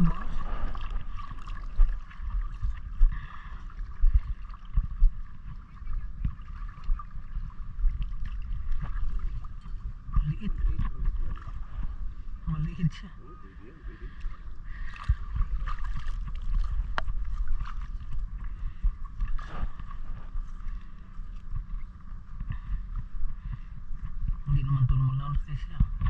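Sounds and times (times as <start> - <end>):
water splashing and dripping: 0.0 - 3.0, 14.7 - 18.2
fishing net hauled from water: 0.0 - 4.8, 13.6 - 22.1
steady high hum: 0.0 - 26.0.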